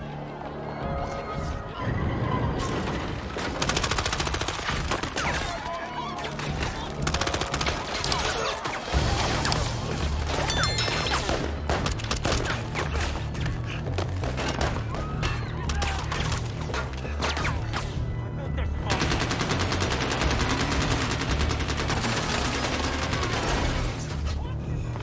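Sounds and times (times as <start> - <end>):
rapid gunfire: 3.6 - 5.3, 7.0 - 8.4, 18.9 - 23.9.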